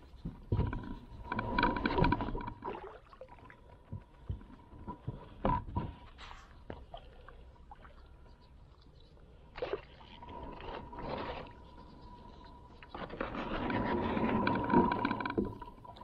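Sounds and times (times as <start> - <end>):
knocks and scrapes on plastic kayak: 0.0 - 2.8, 10.1 - 16.0.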